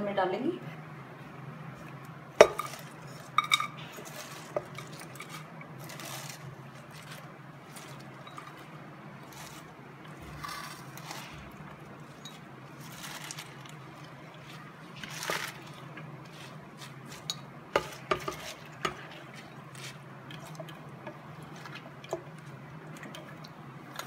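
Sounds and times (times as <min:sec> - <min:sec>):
spinach rustling into pot: 0:01.7 - 0:20.7.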